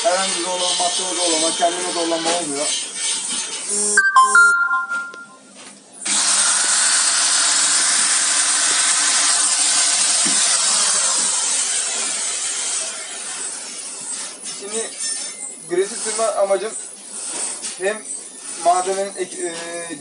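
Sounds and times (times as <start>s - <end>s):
drill grinding through metal: 6.1s - 14.4s.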